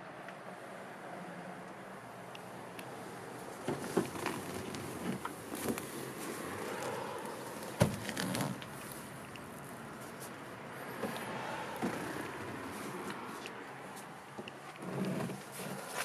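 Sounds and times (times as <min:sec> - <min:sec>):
seat frame clicks and rattles: 0:03.6 - 0:09.6.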